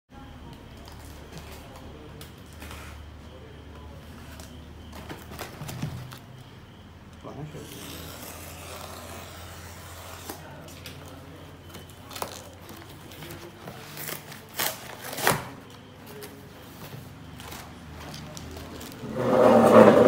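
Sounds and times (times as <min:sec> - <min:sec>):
packing tape ripping: 0:14.0 - 0:15.5.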